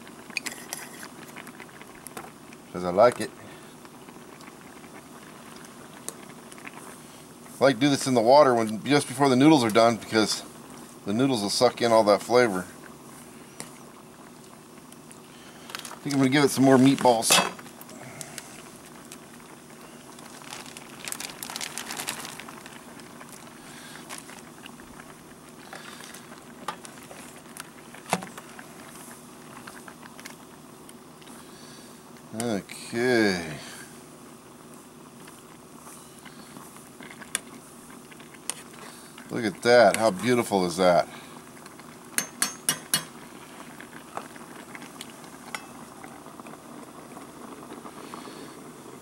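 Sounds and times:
water boiling in pot: 0.0s - 49.0s
utensil clinking on metal pot: 42.2s - 43.2s, 45.5s - 45.8s.

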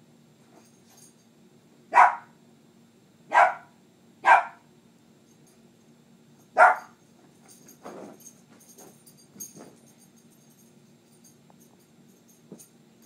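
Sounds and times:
dog barking: 1.9s - 2.4s, 3.3s - 4.7s, 6.6s - 7.0s.

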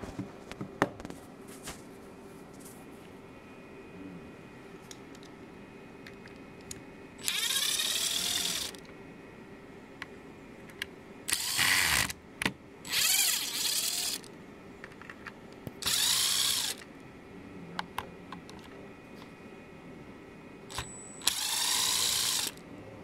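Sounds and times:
electric screwdriver motor whine: 7.2s - 8.8s, 11.3s - 12.1s, 12.9s - 14.3s, 15.8s - 16.8s, 20.7s - 22.6s.

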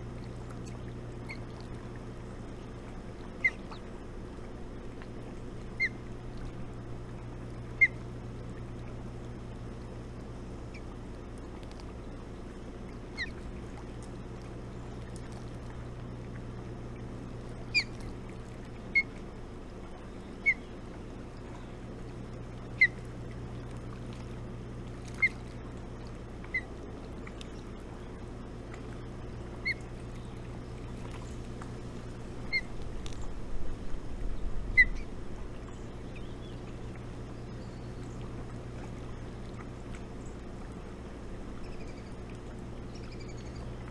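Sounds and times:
steady low hum: 0.0s - 43.9s
osprey high peeps: 17.7s - 18.0s
low rumbling and bumps: 30.9s - 36.1s.

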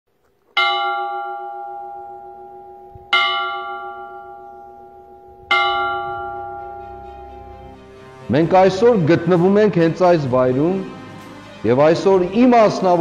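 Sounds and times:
bell ringing: 0.6s - 8.2s.

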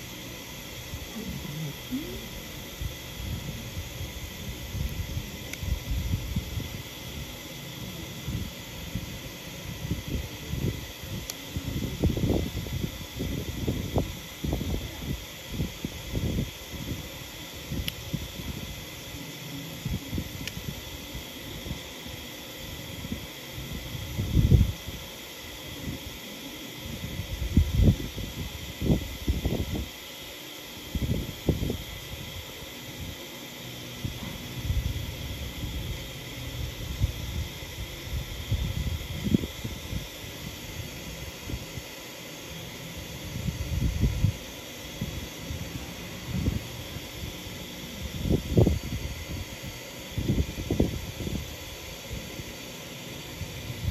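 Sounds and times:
steady background hiss: 0.0s - 53.9s.

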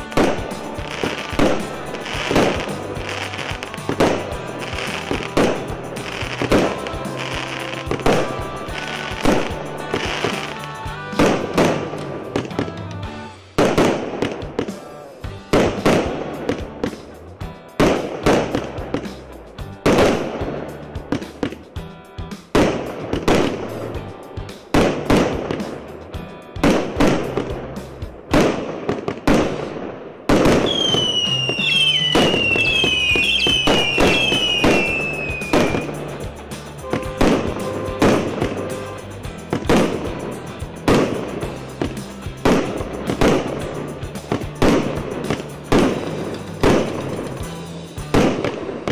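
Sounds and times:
background music: 0.0s - 48.9s
fireworks shots bursting and crackling: 0.0s - 48.9s
falling firework whistles: 30.3s - 43.7s.

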